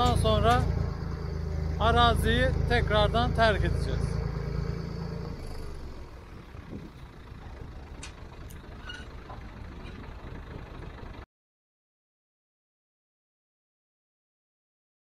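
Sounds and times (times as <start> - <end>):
tractor engine running: 0.0 - 11.2.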